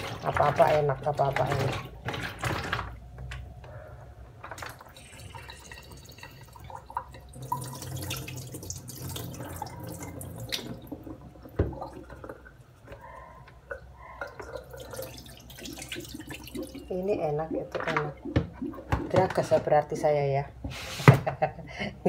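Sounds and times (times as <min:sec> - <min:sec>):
water splashing in a sink: 0:00.0 - 0:03.5, 0:04.4 - 0:20.0
plastic bowl knocking on sink: 0:17.8 - 0:19.7.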